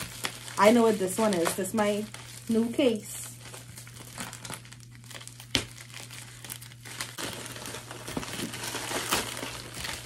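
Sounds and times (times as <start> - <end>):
plastic bag crinkling: 0.0 - 10.0
plastic bag snap: 3.5 - 10.0.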